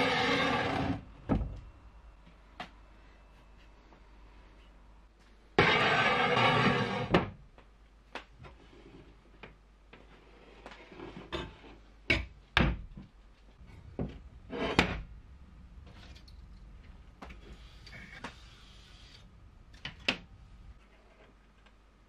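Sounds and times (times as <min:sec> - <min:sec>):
steel strip scraping on concrete: 0:00.0 - 0:01.0, 0:05.6 - 0:07.1.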